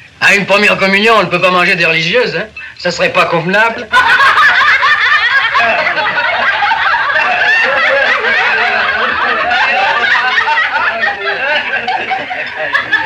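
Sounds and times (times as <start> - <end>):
group of people laughing: 3.8 - 13.0.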